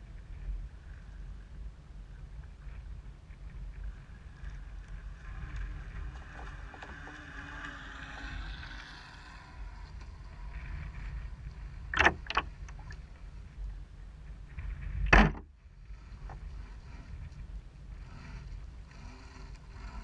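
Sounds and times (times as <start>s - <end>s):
wind buffeting microphone: 0.0s - 20.0s
water rushing along hull: 2.6s - 14.9s.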